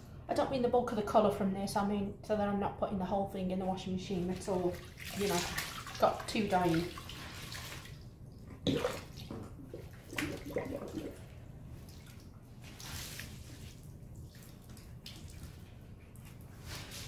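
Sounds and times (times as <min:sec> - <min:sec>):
wringing wet cloth in water: 0:04.0 - 0:17.0
water splashing: 0:04.3 - 0:17.0
water dripping: 0:04.4 - 0:16.4.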